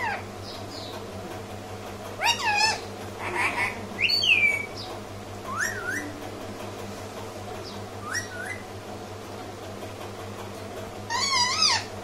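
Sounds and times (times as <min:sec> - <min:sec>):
parakeet squawks and whistles: 0:02.2 - 0:04.7, 0:05.5 - 0:06.1, 0:08.0 - 0:08.6, 0:11.1 - 0:11.9.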